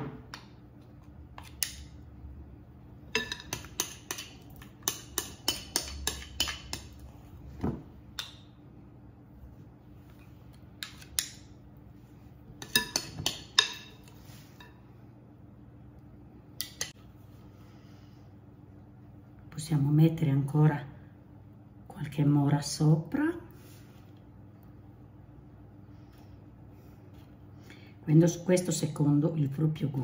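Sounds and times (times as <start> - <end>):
metal spoons clinking together: 3.1 - 6.9
spoons clinking on glass bowl: 3.1 - 6.9.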